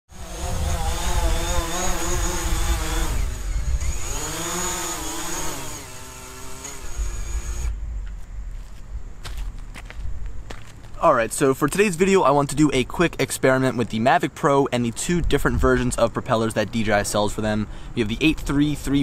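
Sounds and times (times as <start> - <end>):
drone propellers whining: 0.1 - 8.2.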